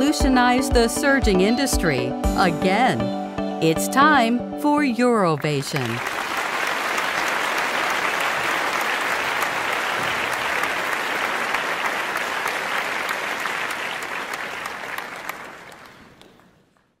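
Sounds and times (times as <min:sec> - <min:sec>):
audience applauding: 0:05.4 - 0:17.0.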